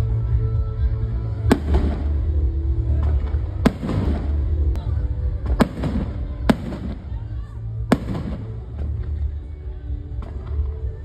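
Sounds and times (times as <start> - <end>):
background music with bass: 0.0 - 11.0
fireworks bangs: 1.5 - 2.4, 3.0 - 4.7, 5.4 - 9.0.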